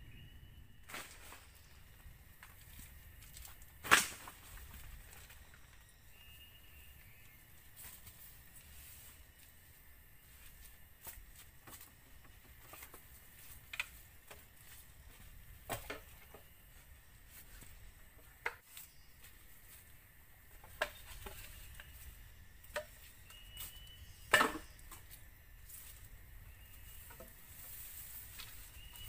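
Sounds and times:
footsteps rustling over grass: 0.9s - 29.0s.

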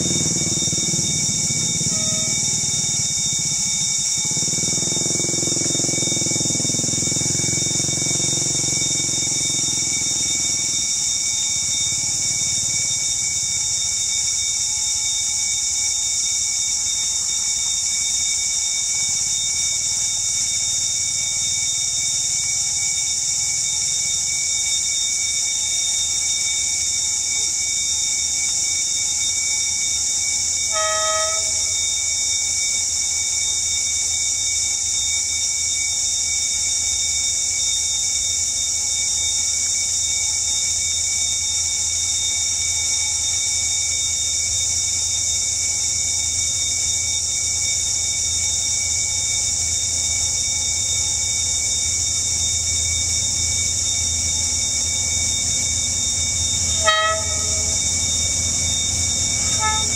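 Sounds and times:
locomotive horn toot: 0.0s - 3.5s, 30.6s - 32.2s, 50.8s - 59.9s
diesel locomotive engine rumble: 0.0s - 13.3s, 30.1s - 33.1s, 41.4s - 59.9s
steady high hiss: 42.5s - 59.9s.

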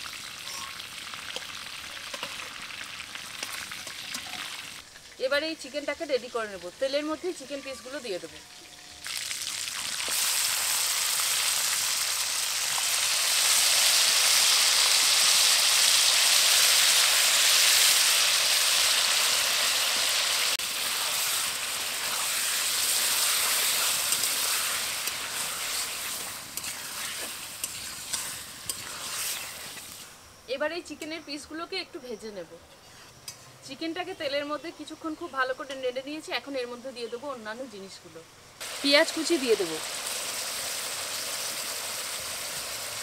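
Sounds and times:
chicken sizzling in hot oil: 0.0s - 30.2s, 38.6s - 43.0s
spatula scraping and clicking: 26.5s - 29.5s.

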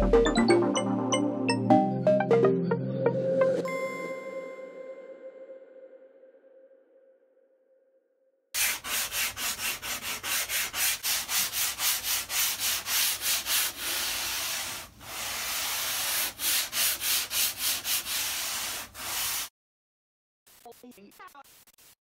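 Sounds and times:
sanding block rasping on wood: 8.6s - 19.5s, 21.4s - 22.0s.

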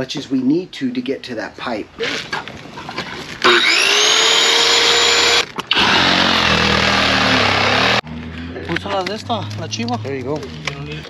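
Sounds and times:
circular saw cutting: 3.4s - 8.0s.

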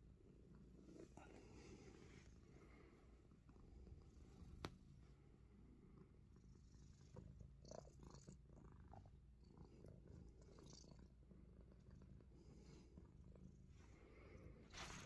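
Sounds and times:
cat purring: 0.0s - 15.0s
soft rustles or clicks: 14.7s - 15.0s.

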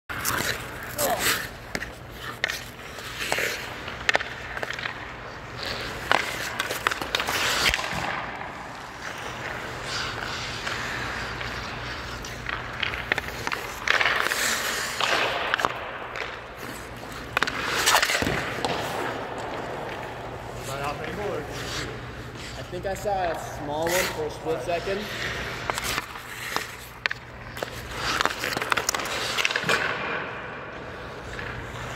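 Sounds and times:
skates and pads scraping on ice: 0.1s - 31.9s
sharp knocks of sticks and pucks: 6.0s - 8.5s, 12.0s - 16.5s, 17.2s - 20.1s.

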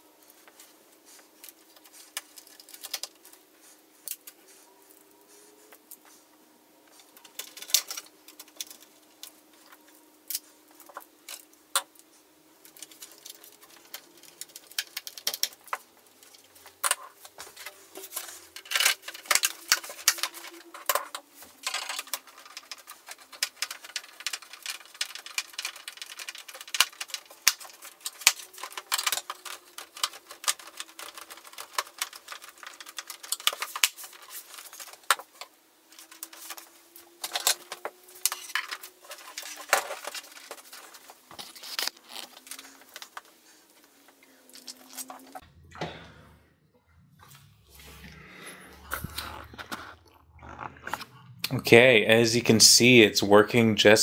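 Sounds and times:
faint wandering hum: 0.0s - 23.7s.

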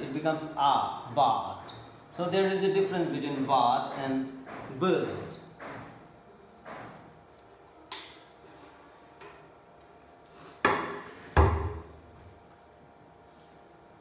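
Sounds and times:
whiteboard knocking down: 10.6s - 11.9s.

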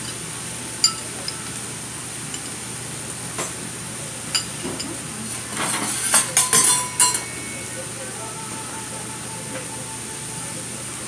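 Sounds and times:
metal utensils clinking: 0.0s - 1.7s, 4.3s - 7.6s.

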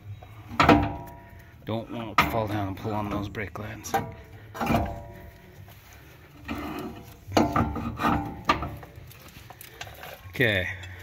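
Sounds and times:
sharp metal knocks: 0.5s - 1.2s
metal parts scraping: 2.3s - 11.0s.

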